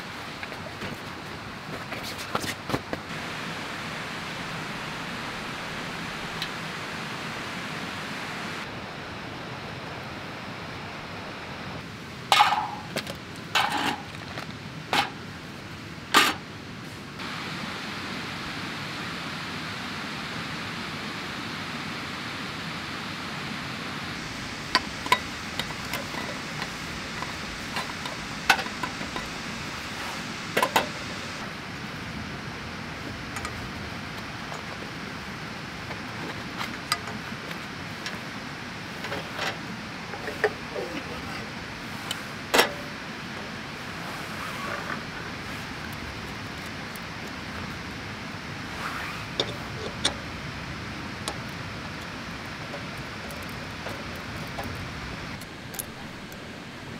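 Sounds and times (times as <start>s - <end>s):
cook pots and lids clinking: 12.3s - 13.0s, 24.7s - 29.4s.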